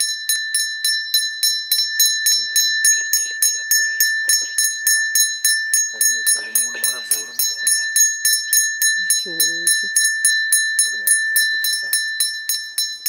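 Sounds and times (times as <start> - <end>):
hand bell ringing rapidly: 0.0 - 13.0
faint murmuring voices: 6.0 - 8.0.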